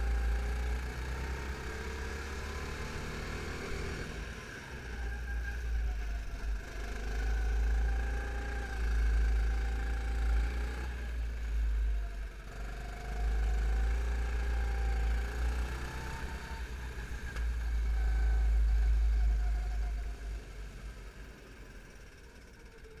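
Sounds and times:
kart engine revving: 12.5 - 18.9.

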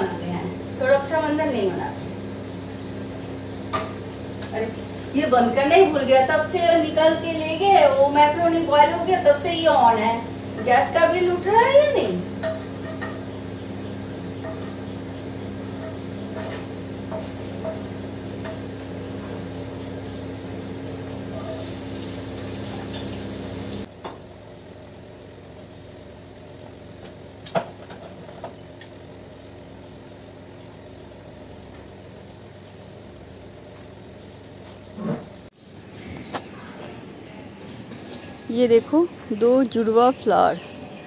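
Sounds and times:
steady hum: 0.0 - 24.0, 29.2 - 41.0
spatula stirring frying vegetables: 12.3 - 18.7.

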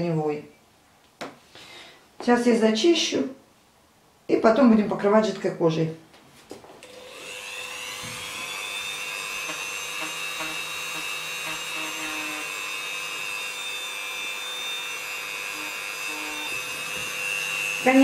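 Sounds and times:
rotary tool high whine: 6.8 - 18.0.

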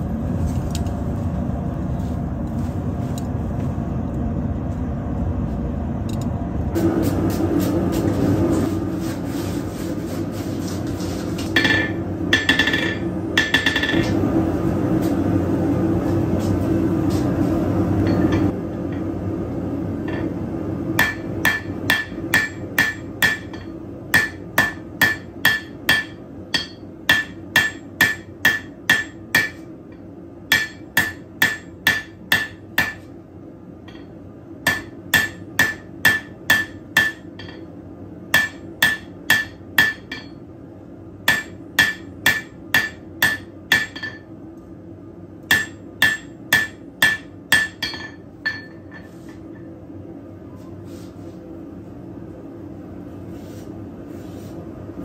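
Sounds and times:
hammer striking steel on anvil: 11.5 - 14.2, 18.0 - 19.0, 21.0 - 33.1, 33.9 - 37.7, 38.3 - 40.4, 41.3 - 44.3, 45.5 - 49.4.

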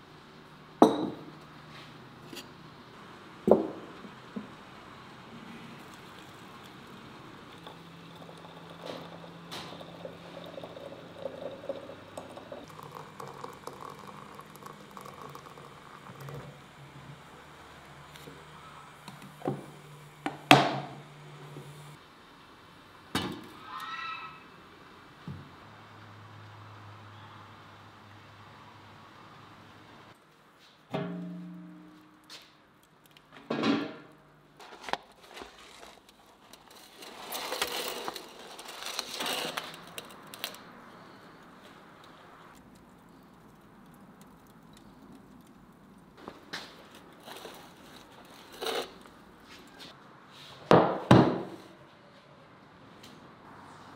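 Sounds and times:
embers crackling: 4.1 - 22.0, 34.4 - 49.9
glass teapot clinking on metal: 7.6 - 16.3
metal pan scraping on stone: 48.3 - 49.0.

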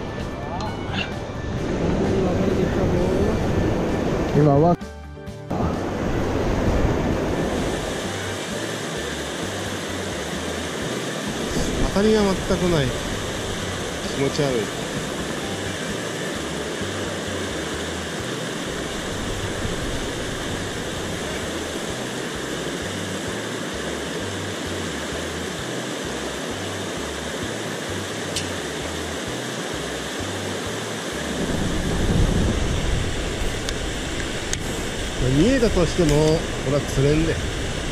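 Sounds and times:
stream water flowing: 5.5 - 37.9
low rumble: 31.2 - 37.9.

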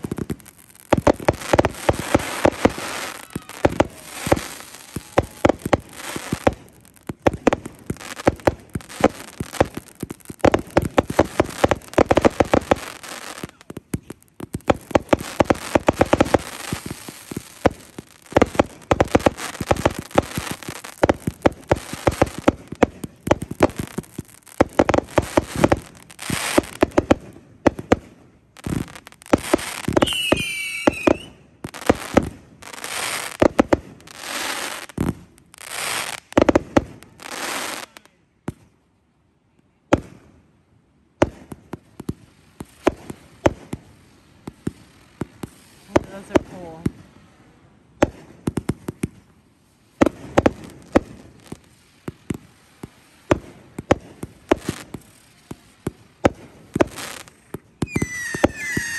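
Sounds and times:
fireworks bangs and crackles: 0.0 - 38.8, 39.8 - 40.4, 41.1 - 58.9
firework whistle: 2.0 - 6.3, 29.7 - 31.4, 57.8 - 58.9.

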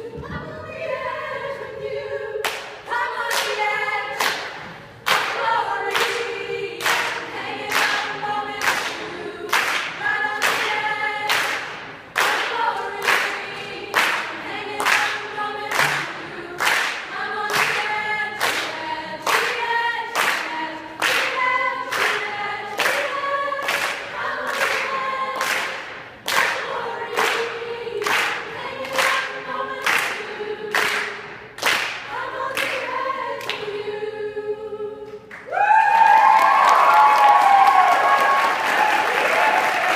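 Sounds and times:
female choir singing in harmony: 0.0 - 35.8
singers clapping on the beat: 2.4 - 33.8, 35.1 - 39.9
audience applause: 35.5 - 39.9.

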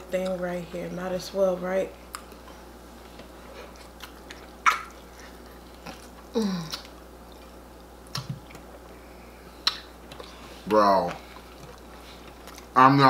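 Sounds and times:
wet chewing and lip smacking: 2.1 - 8.9, 9.6 - 10.5, 11.3 - 12.8.

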